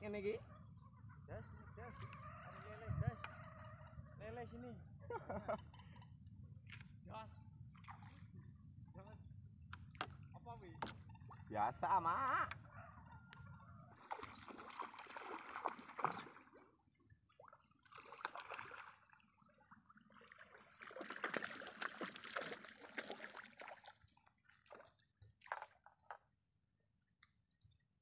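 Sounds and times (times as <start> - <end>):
fish thrashing and splashing: 14.0 - 16.6, 17.8 - 19.3, 20.0 - 24.8.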